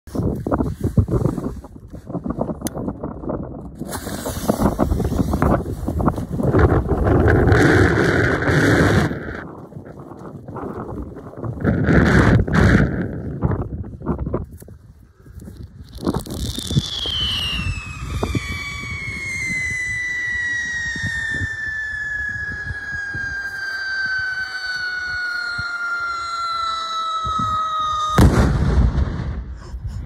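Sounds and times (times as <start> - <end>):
firework shrill whistle: 16.2 - 29.2
loud firework bang: 28.1 - 29.7.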